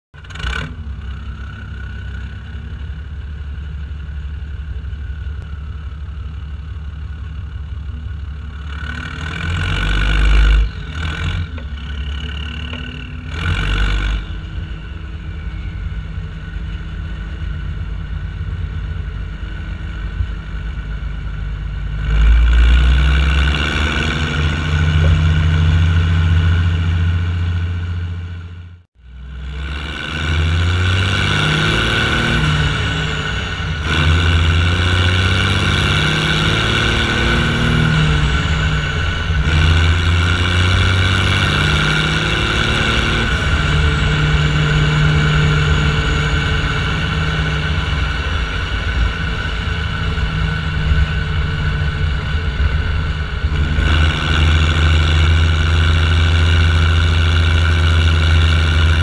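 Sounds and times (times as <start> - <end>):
tractor diesel engine running: 0.1 - 59.0.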